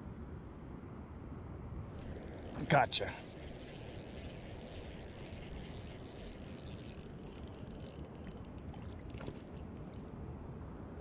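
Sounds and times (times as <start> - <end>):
fishing reel being cranked: 2.0 - 8.9
high steady buzz: 2.1 - 8.4
sharp clicks: 2.1 - 8.8.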